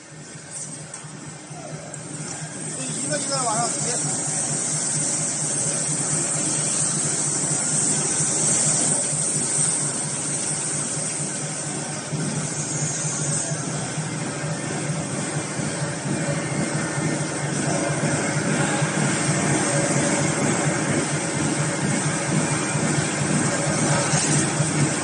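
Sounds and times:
machinery humming and hissing: 0.0 - 25.0.

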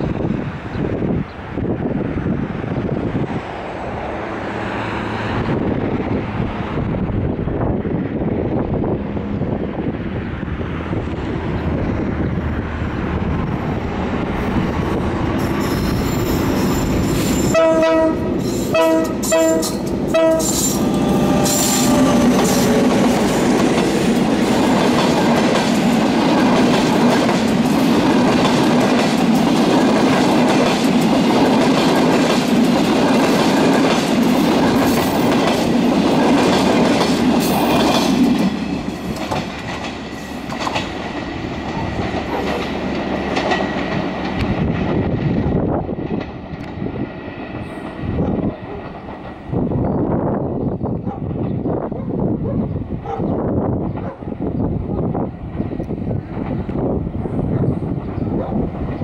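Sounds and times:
diesel locomotive engine: 0.0 - 59.0
train wheels clickety-clack: 14.6 - 49.5, 53.0 - 54.3
train horn blasts: 17.2 - 23.0.

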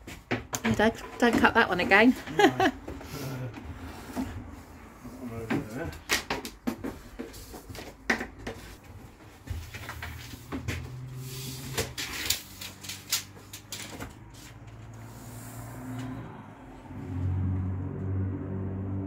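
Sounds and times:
wooden strips knocking and clicking: 5.5 - 8.8.

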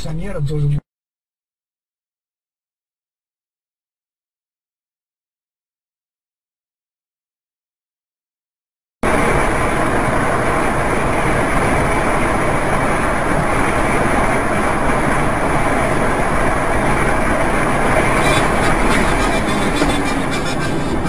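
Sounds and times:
vehicle road noise: 9.0 - 21.0.

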